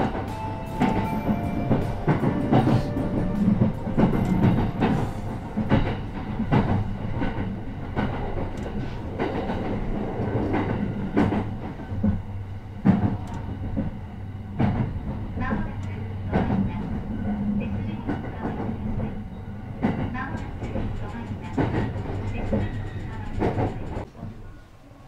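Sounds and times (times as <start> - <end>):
train interior rumble: 0.0 - 24.6
wheels clacking over rail joints: 19.8 - 24.1.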